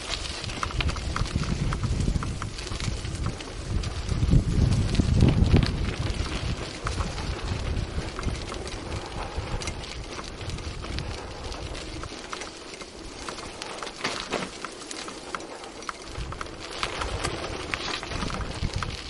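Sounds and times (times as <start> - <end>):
bicycle tyres crunching gravel: 0.0 - 19.0
clicks and rattles from bike: 0.0 - 19.0
wind rumble on microphone: 0.0 - 19.0.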